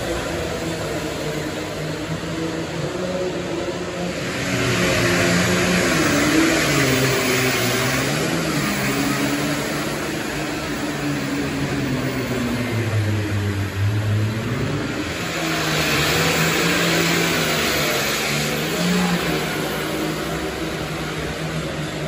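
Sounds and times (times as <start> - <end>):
tractor engine at full throttle: 0.0 - 22.0.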